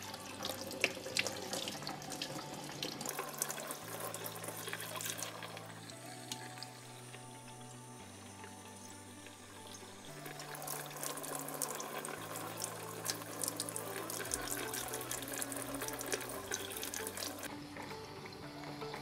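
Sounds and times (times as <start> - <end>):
faucet water splashing in sink: 0.0 - 6.7, 9.6 - 17.5.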